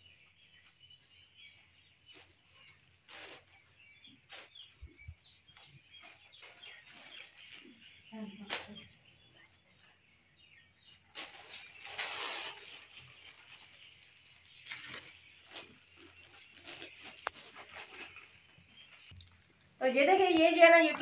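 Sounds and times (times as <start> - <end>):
plastic bags rustling: 2.1 - 8.8, 11.0 - 21.0.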